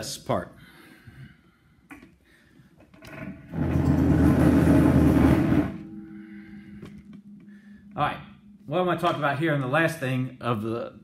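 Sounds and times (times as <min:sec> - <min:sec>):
faint steady hum: 0:00.0 - 0:11.0
loud rumbling scrape: 0:03.3 - 0:06.8.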